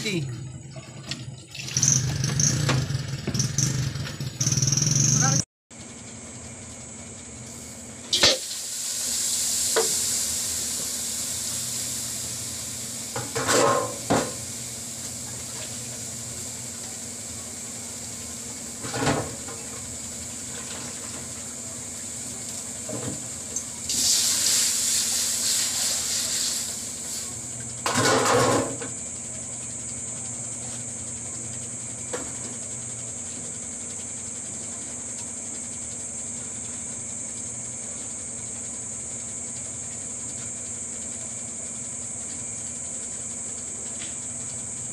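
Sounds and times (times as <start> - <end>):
onion sizzling in a wok: 7.4 - 27.5.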